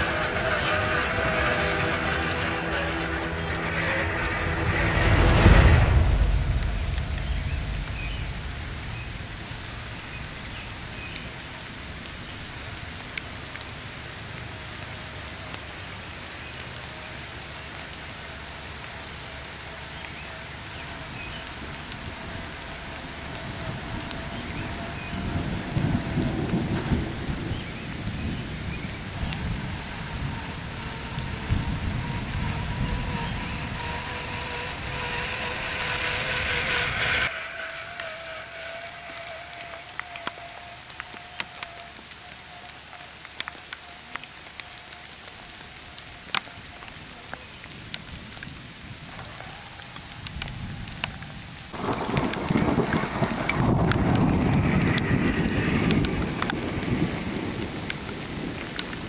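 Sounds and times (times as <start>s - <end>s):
electric motor and gears whining: 0.0s - 11.4s, 12.7s - 59.0s
heavy steady rain-like noise: 0.0s - 59.0s
scattered ticks: 16.6s - 48.5s, 49.2s - 59.0s.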